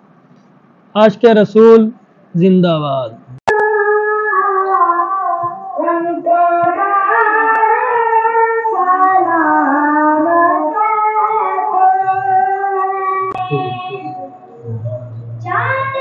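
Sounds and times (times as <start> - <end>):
person singing unaccompanied: 3.3 - 16.0.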